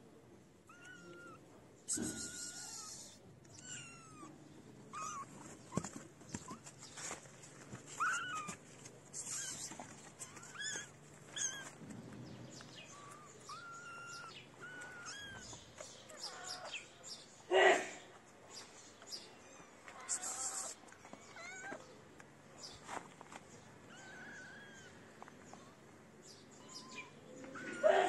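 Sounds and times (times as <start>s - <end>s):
kittens mewing: 0.6s - 6.8s, 7.9s - 11.8s, 12.6s - 16.9s, 19.5s - 21.9s, 23.8s - 25.1s, 26.4s - 28.0s.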